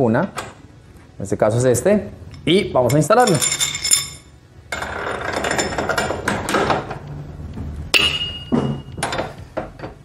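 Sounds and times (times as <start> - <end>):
metal tool clanking: 2.3 - 4.3.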